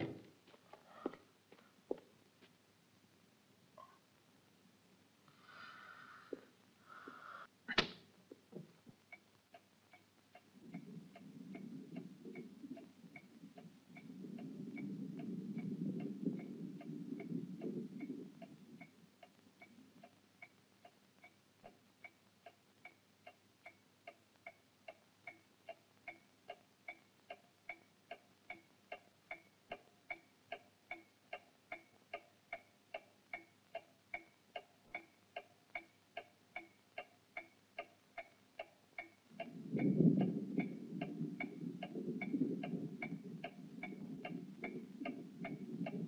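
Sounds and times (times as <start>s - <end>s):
mechanical ticking: 25.2s - 46.0s.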